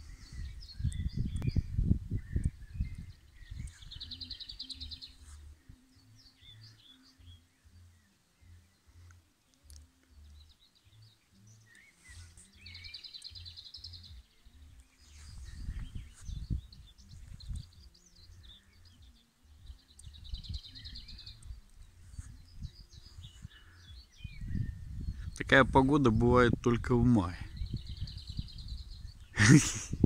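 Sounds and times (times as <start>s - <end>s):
wind buffeting microphone: 0.0s - 4.6s, 15.2s - 18.6s, 19.6s - 30.0s
songbirds singing: 0.0s - 30.0s.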